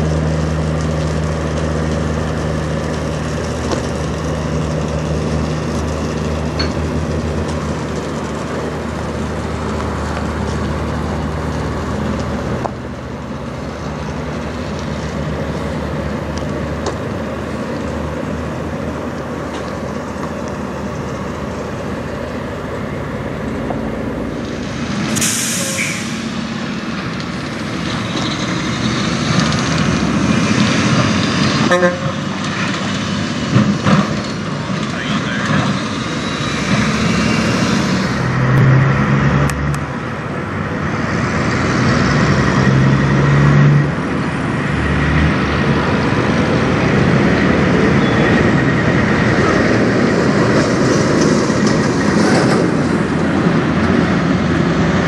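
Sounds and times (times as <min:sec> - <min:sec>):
diesel truck engines running: 0:00.0 - 0:55.0
road traffic: 0:00.0 - 0:55.0
air brake hiss: 0:25.2 - 0:26.2.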